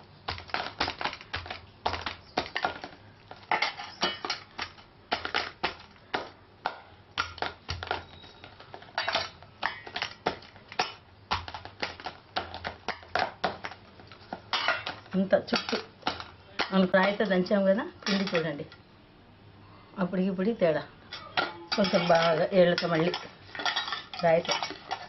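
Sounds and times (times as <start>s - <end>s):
stone pounding dough in steel bowl: 0.3s - 13.8s.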